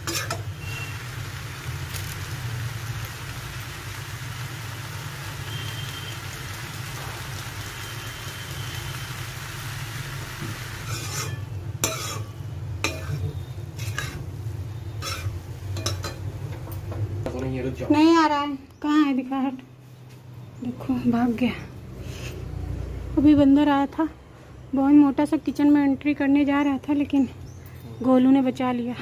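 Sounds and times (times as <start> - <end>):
spatula scraping a pan: 0.0 - 0.9, 10.8 - 14.4, 15.0 - 16.2
pasta sizzling in a pan: 0.0 - 16.8.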